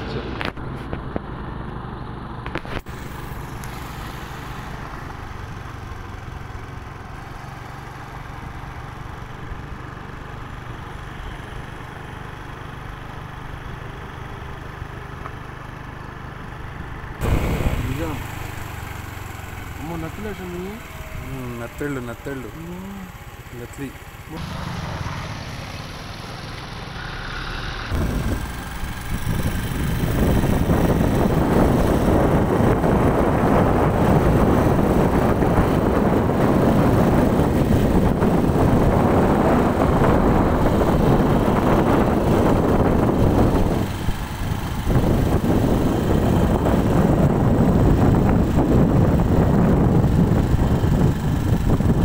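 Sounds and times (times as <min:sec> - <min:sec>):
wind buffeting microphone: 0:27.9 - 0:52.0.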